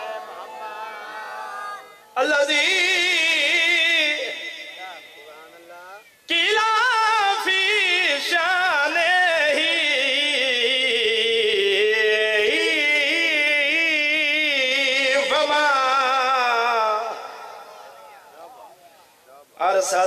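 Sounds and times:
man chanting into a microphone: 2.2s - 5.3s, 6.3s - 17.8s, 19.6s - 20.0s.

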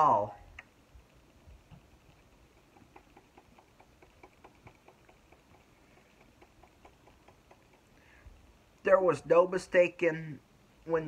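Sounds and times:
faint even ticking: 1.6s - 8.2s.

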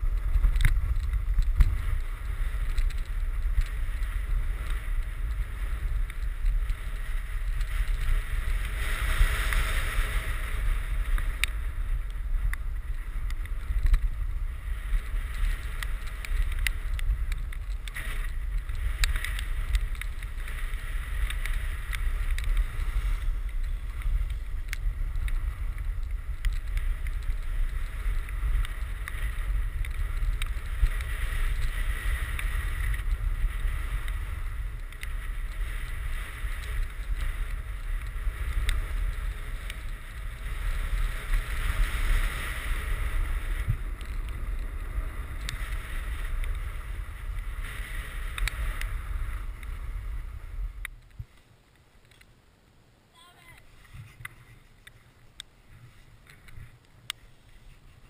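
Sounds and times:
wind buffeting microphone: 0.0s - 51.3s
snowboard hissing on packed snow: 7.7s - 11.0s, 20.4s - 23.4s.

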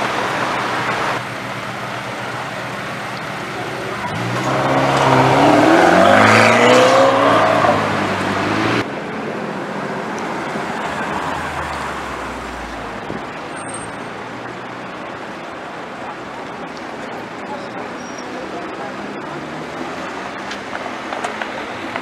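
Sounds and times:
car engine accelerating: 0.0s - 15.4s.

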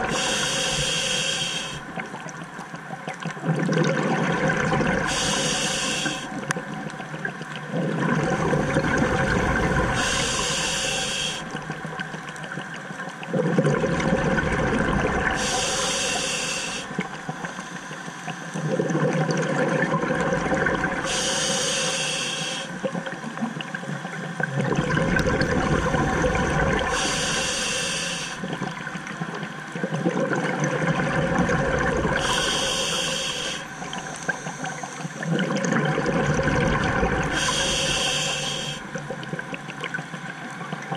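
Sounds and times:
regulator inhale hiss: 0.0s - 1.9s, 5.0s - 6.4s, 9.5s - 11.6s, 15.2s - 18.8s, 21.0s - 22.9s, 26.8s - 28.6s, 32.2s - 35.3s, 37.2s - 39.1s
exhaust bubbles rushing: 7.8s - 10.0s, 13.4s - 15.4s, 24.6s - 27.0s, 30.0s - 32.2s, 35.3s - 37.4s.

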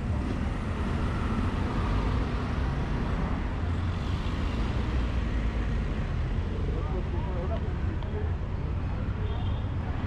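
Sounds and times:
street traffic rumble: 0.0s - 10.0s.

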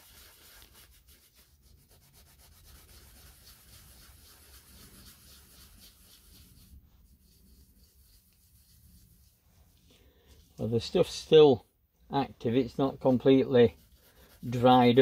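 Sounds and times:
scouring pad scrubbing metal: 0.0s - 9.3s.

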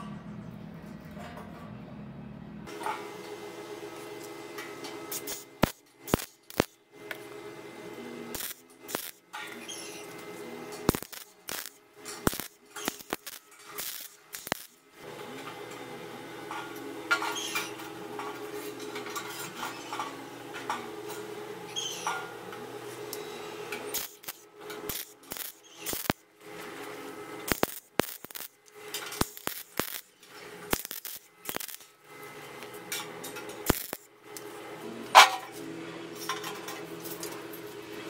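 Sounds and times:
welder crackling: 5.0s - 7.2s, 8.3s - 14.9s, 23.8s - 34.6s
motor hum: 19.8s - 38.0s.

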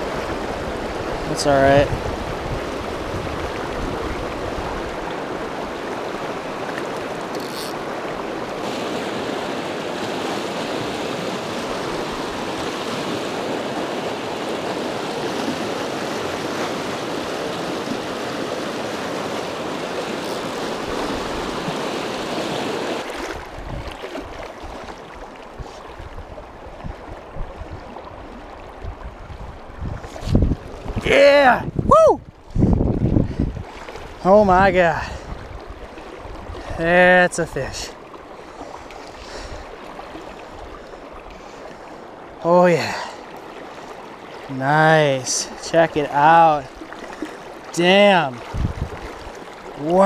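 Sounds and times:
wind buffeting microphone: 0.0s - 5.5s, 23.4s - 24.8s, 25.5s - 36.8s, 48.4s - 50.0s
river water rushing over rocks: 0.0s - 29.0s, 30.6s - 31.6s, 37.3s - 50.0s.

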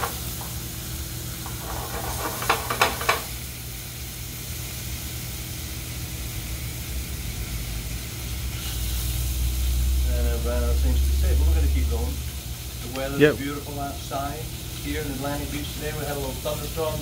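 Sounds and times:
fish sizzling in a frying pan: 0.0s - 17.0s
scrapes and knocks against pan: 1.4s - 3.3s.

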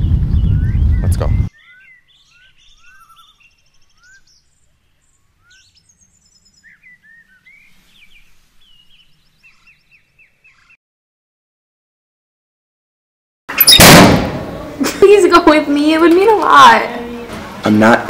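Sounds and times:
songbirds chirping and singing: 0.0s - 10.8s
faint outdoor background noise: 1.0s - 10.8s, 13.5s - 18.0s.

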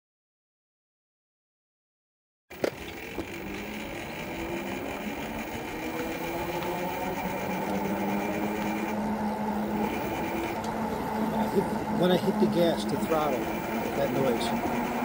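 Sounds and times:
electric motor whining: 2.5s - 15.0s.

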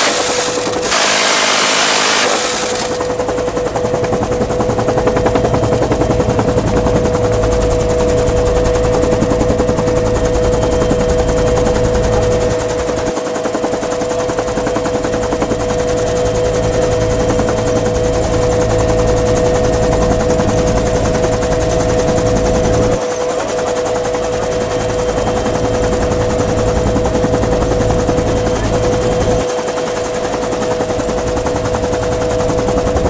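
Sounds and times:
minigun firing: 0.0s - 3.2s
helicopter rotor rumble: 0.0s - 33.0s
helicopter turbine whine: 0.0s - 33.0s.

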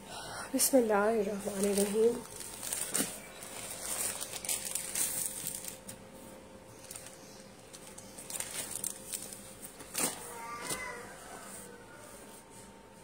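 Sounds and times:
plastic packaging crinkling: 1.2s - 6.1s, 6.7s - 11.0s.

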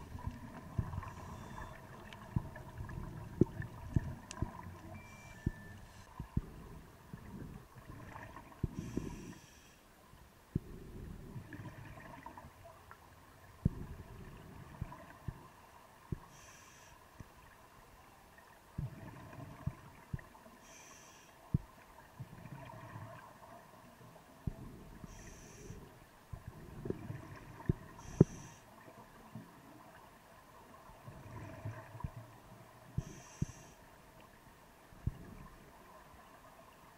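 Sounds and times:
burbling exhaled bubbles: 10.6s - 12.4s
regulator inhalation hiss: 16.3s - 17.0s, 20.6s - 21.4s.

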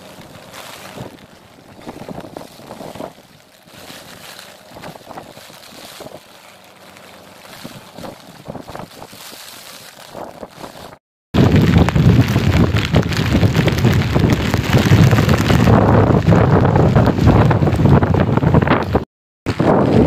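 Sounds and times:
vehicle moving on wet road: 0.0s - 19.0s
wind buffeting microphone: 0.0s - 20.0s.

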